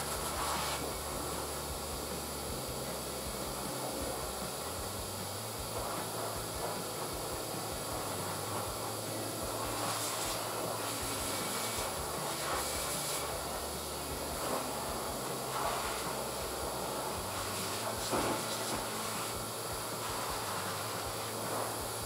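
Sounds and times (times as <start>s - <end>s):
blower dryer rushing hiss: 0.0s - 22.0s.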